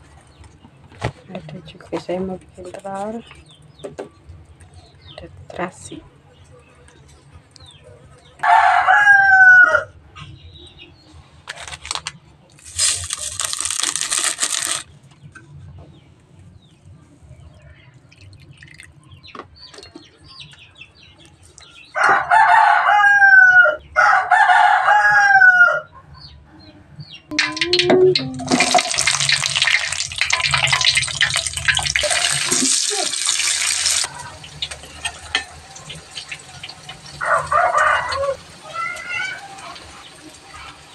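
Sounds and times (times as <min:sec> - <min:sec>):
rooster crowing: 0:08.4 - 0:10.0, 0:22.0 - 0:26.0, 0:37.1 - 0:38.5
water poured from a dipper: 0:12.6 - 0:14.8, 0:27.4 - 0:37.0.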